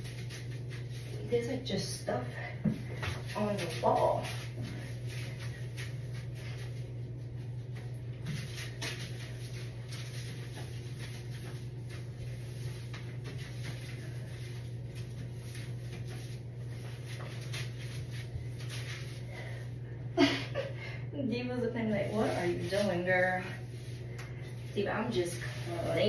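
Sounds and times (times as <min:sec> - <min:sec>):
steady low hum: 0:00.0 - 0:26.0
cleaning wipe rubbing on tile: 0:08.3 - 0:19.6, 0:21.8 - 0:26.0.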